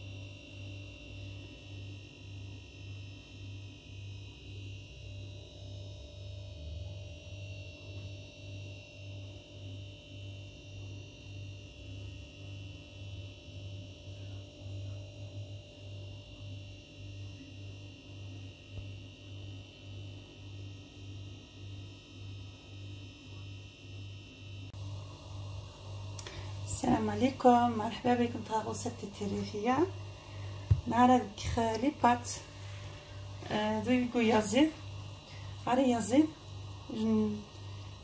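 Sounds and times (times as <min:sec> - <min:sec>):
faint high whine: 0:24.2 - 0:38.0
pulsing low hum: 0:24.7 - 0:38.0.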